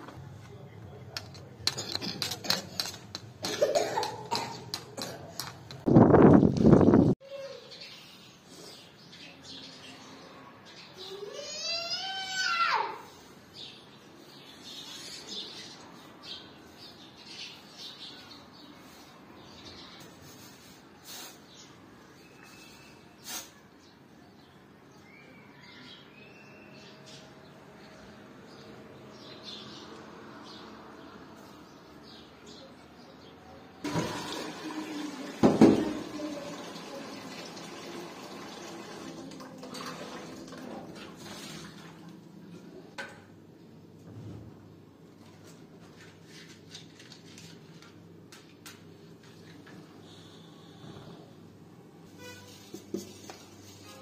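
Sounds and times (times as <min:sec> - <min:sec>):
water running and splashing: 0:33.9 - 0:42.2.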